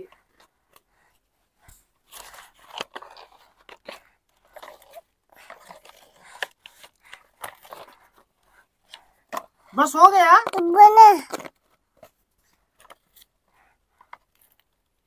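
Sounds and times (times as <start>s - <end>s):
toy digging through dry sand: 1.0s - 11.5s.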